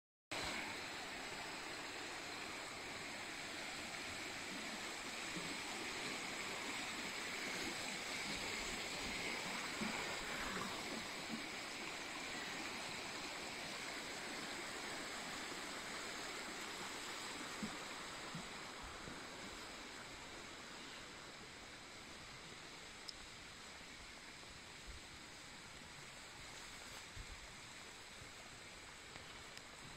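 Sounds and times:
stream splashing over rocks: 0:00.4 - 0:20.6.

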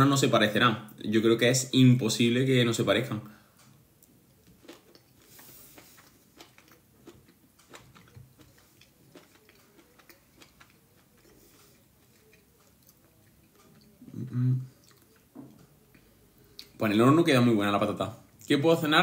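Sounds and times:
faint chewing: 0:03.6 - 0:16.8.

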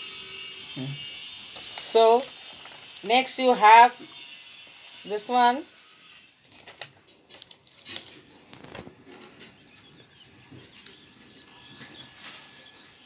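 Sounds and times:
light clicks and crinkles: 0:06.4 - 0:09.6
paper rustling: 0:06.4 - 0:09.6.

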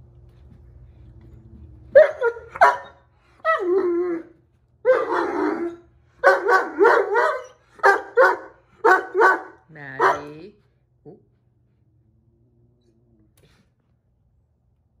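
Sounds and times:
puppy barking: 0:02.0 - 0:03.6, 0:04.9 - 0:05.4, 0:06.2 - 0:10.4.

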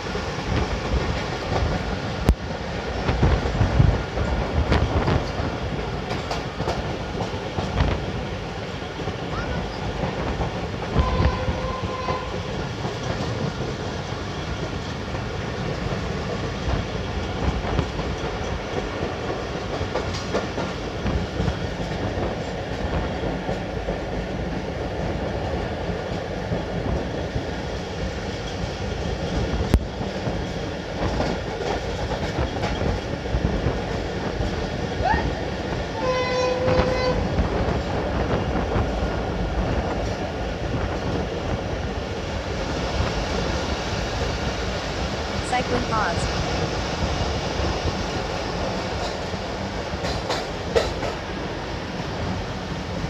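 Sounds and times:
train wheels rumbling on rails: 0:00.0 - 0:53.0
train horn: 0:10.9 - 0:12.6, 0:36.0 - 0:37.3.

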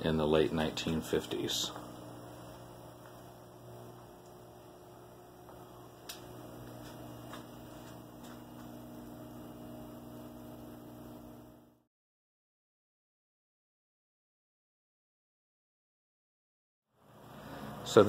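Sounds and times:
low electrical hum: 0:00.0 - 0:11.9, 0:17.0 - 0:18.0.

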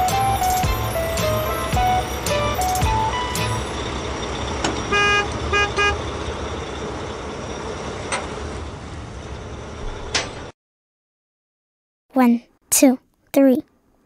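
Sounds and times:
vehicle horn tooting: 0:04.9 - 0:06.1.

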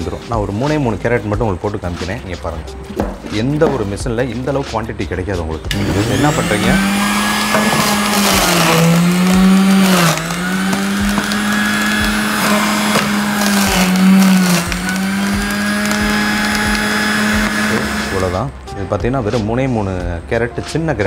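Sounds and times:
electric juicer motor running: 0:05.7 - 0:18.5
carrots crunching: 0:05.8 - 0:18.4.

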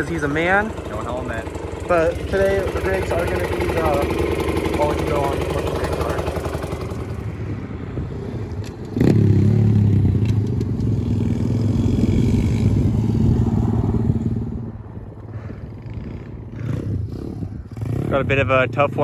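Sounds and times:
small motorbike engine running: 0:00.0 - 0:07.3, 0:15.2 - 0:19.0.

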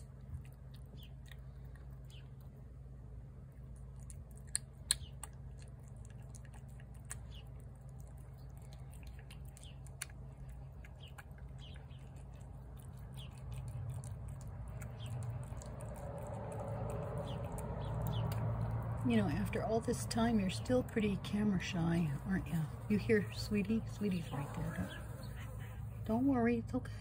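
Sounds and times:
cat chewing wet food: 0:00.0 - 0:21.4.

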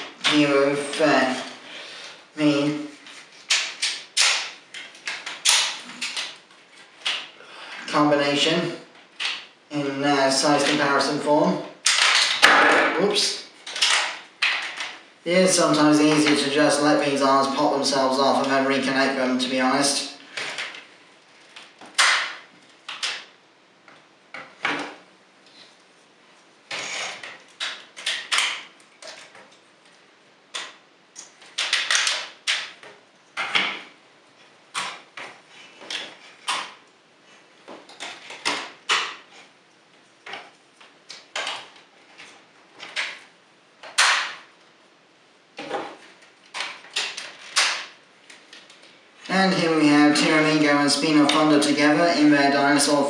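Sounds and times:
plastic toy parts clicking: 0:30.5 - 0:32.8.

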